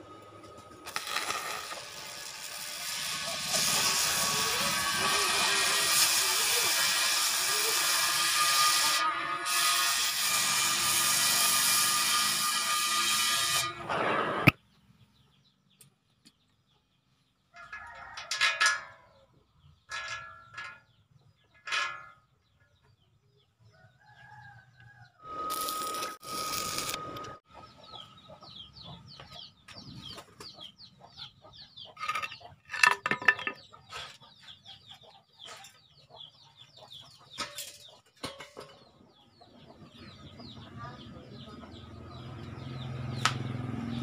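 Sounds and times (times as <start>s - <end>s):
arc welder crackling: 0.1s - 9.0s, 25.3s - 27.4s
gas cutting torch hissing: 0.9s - 8.1s, 25.3s - 27.3s
chickens calling: 26.5s - 43.7s.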